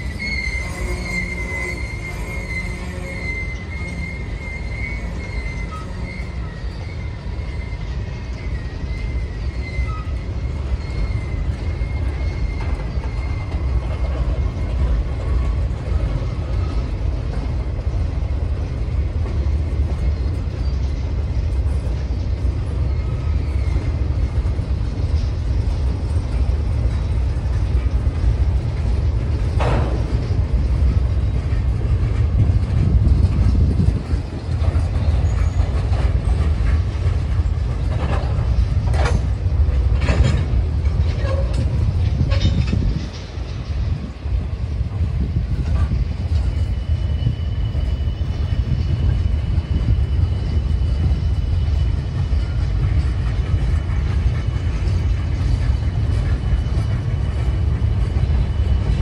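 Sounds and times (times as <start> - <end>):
brief sharp screech: 0.0 - 8.0
thin wheel squeal: 0.0 - 14.1, 46.3 - 52.7
freight train cars rumbling: 0.0 - 59.0.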